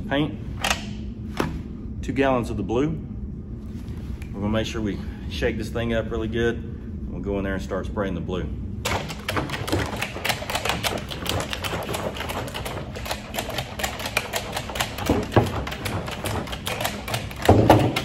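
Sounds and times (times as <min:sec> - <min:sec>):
paint can rattling: 0:08.9 - 0:18.0.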